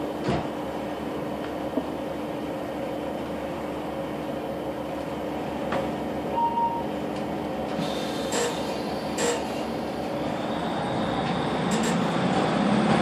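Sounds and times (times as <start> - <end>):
short beep: 6.3 - 6.9.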